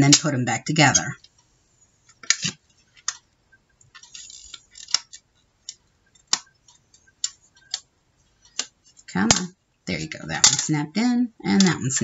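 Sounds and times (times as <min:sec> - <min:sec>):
plastic scraping on plastic: 0:04.0 - 0:05.2.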